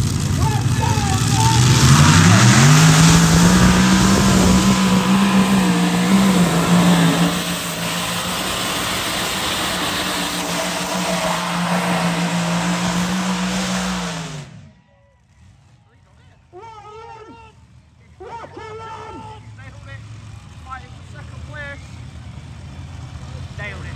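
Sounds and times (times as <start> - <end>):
tractor engine revving: 0.0 - 14.7.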